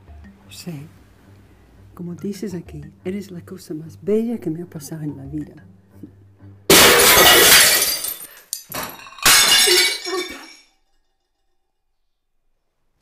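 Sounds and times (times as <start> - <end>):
glass and crockery smashing: 6.7 - 10.7
scattering broken pieces: 6.7 - 10.7.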